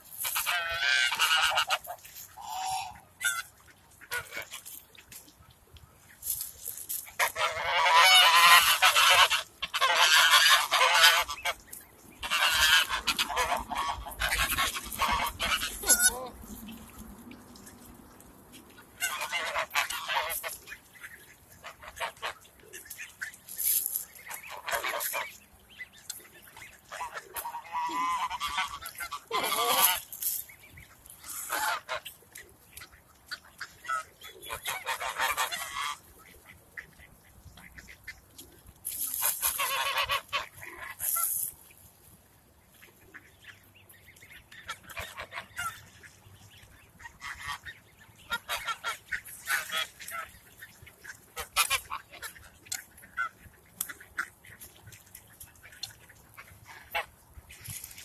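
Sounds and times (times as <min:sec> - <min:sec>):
geese honking: 0:00.2 - 0:04.8, 0:06.7 - 0:16.8, 0:18.8 - 0:25.4, 0:26.4 - 0:30.4, 0:31.2 - 0:32.2, 0:32.8 - 0:38.2, 0:39.0 - 0:41.5, 0:47.0 - 0:54.8.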